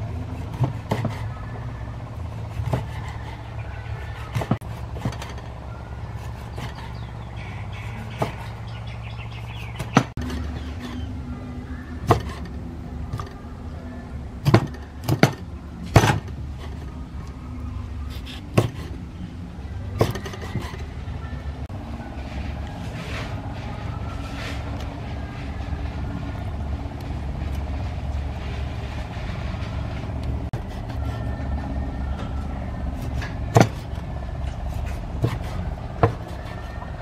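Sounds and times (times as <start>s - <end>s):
steady low hum: 0.0s - 37.0s
cleaver chopping on wooden block: 0.4s - 1.3s, 2.5s - 3.2s, 4.1s - 5.4s, 8.0s - 8.6s, 12.0s - 12.5s, 14.4s - 16.3s, 18.1s - 19.0s, 20.0s - 20.8s, 33.5s - 34.0s, 35.2s - 36.6s.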